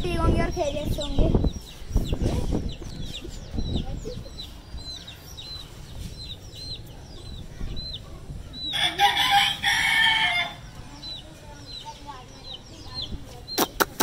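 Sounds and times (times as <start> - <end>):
chick peeping: 0.1 - 14.0
rooster crowing: 8.7 - 10.6.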